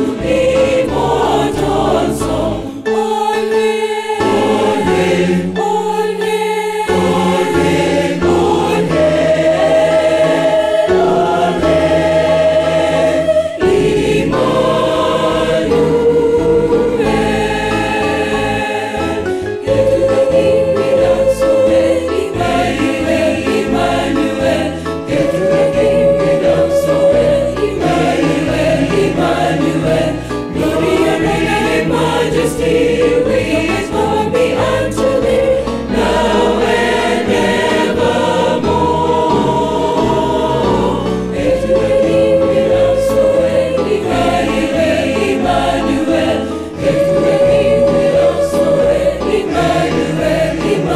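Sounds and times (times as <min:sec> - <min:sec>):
choir singing a hymn: 0:00.0 - 0:50.9.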